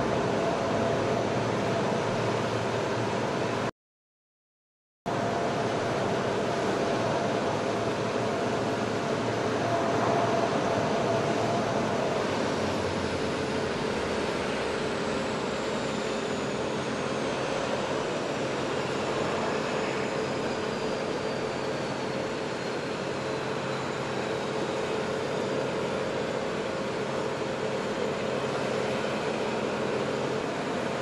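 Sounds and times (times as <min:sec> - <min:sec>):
faint high whine: 0:00.0 - 0:03.7, 0:05.1 - 0:31.0
machinery drone: 0:00.0 - 0:03.7, 0:05.1 - 0:31.0.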